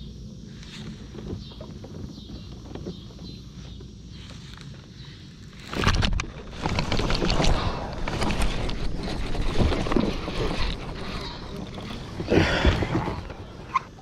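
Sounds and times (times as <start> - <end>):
fishing tackle clicks and rustles: 5.5 - 14.0.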